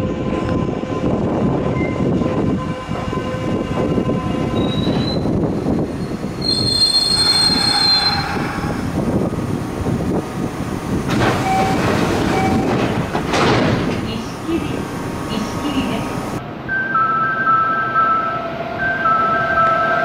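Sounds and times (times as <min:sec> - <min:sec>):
electric train rumbling: 0:00.0 - 0:20.0
wheel squeal: 0:04.6 - 0:05.3, 0:06.0 - 0:08.8.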